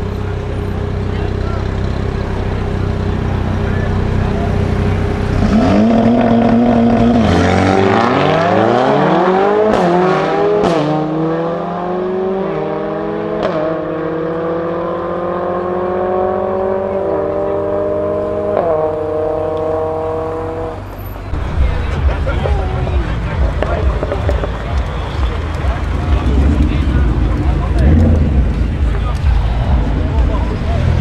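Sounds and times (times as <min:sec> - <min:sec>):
car engines revving: 0:00.0 - 0:31.0
exhaust cracks: 0:23.0 - 0:31.0.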